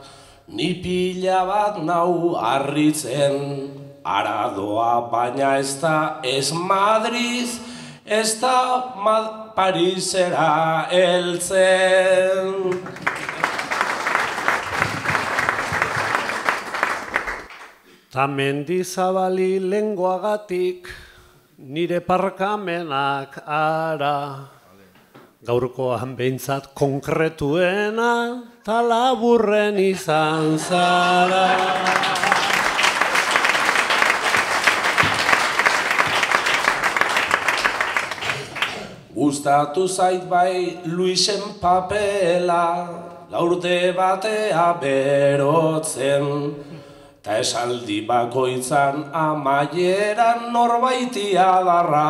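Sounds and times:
audience applauding: 0:12.7 - 0:17.8, 0:30.4 - 0:39.0.

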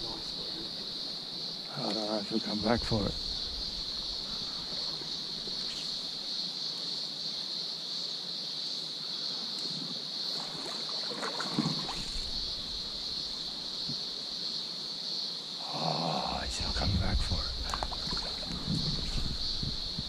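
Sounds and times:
high-pitched insect drone: 0:00.0 - 0:20.0
shallow stream rushing: 0:09.9 - 0:14.2, 0:17.3 - 0:20.0.

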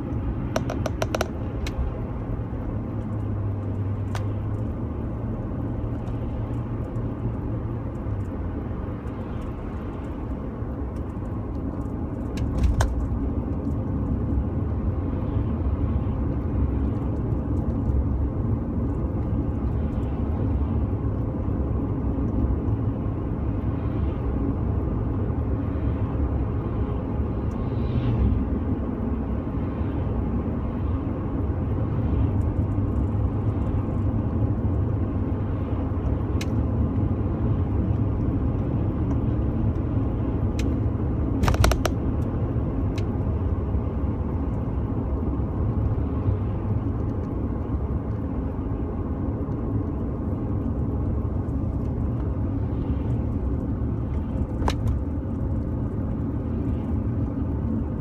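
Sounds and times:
car road and engine rumble: 0:00.0 - 0:58.0
rattle of clicks: 0:00.5 - 0:01.8, 0:41.4 - 0:42.0.

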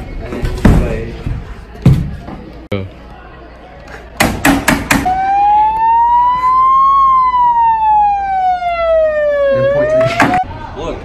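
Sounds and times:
siren wailing: 0:05.1 - 0:10.5.

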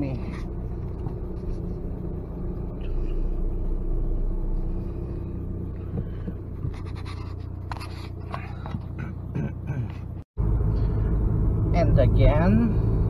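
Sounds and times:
car engine and road rumble: 0:00.0 - 0:13.0
camera handling rubbing and knocking: 0:06.6 - 0:09.1.

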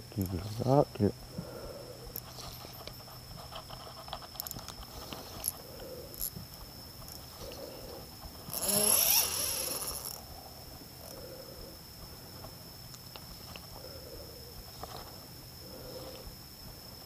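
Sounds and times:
high insect drone: 0:00.0 - 0:17.0
fishing reel clicks: 0:08.5 - 0:10.2.

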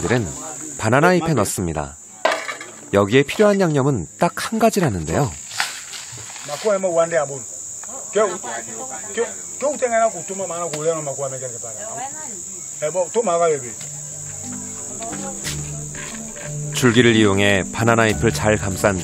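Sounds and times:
high-pitched insect chorus: 0:00.0 - 0:19.0
man speaking: 0:14.9 - 0:19.0.

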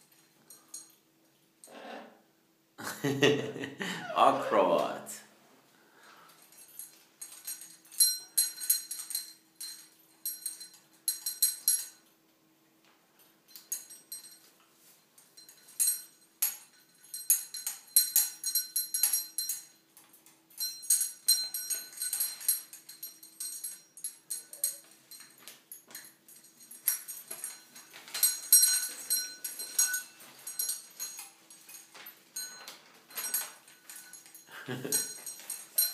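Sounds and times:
metal rings clinking: 0:00.0 - 0:01.0, 0:06.2 - 0:12.2, 0:13.2 - 0:35.9
small metal bell jingling: 0:06.2 - 0:12.1, 0:13.4 - 0:35.9.

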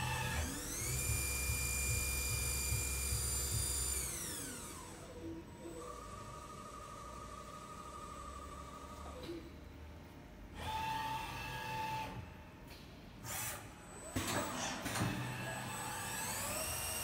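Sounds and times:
machine drive whines: 0:00.0 - 0:09.5.

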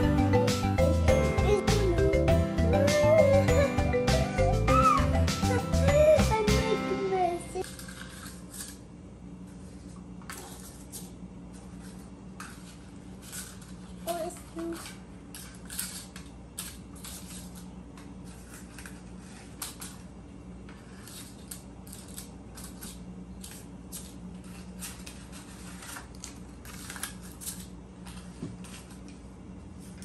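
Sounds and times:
paper cupcake liners crinkling: 0:20.8 - 0:29.2.

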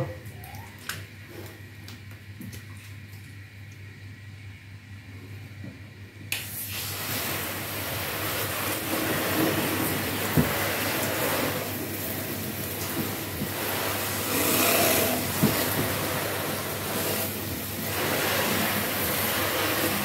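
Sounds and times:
water spraying onto a car: 0:06.4 - 0:20.0.

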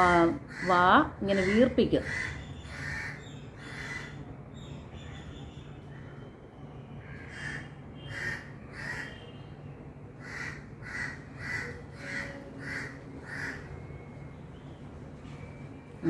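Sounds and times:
crow cawing: 0:00.5 - 0:04.2, 0:07.0 - 0:09.2, 0:10.2 - 0:13.7.

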